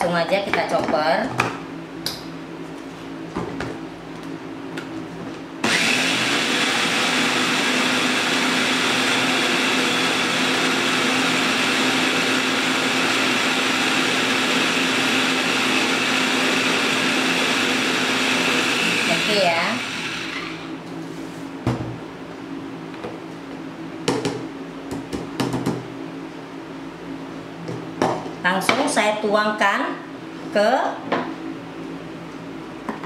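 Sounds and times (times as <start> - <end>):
food chopper motor running: 5.6 - 20.8.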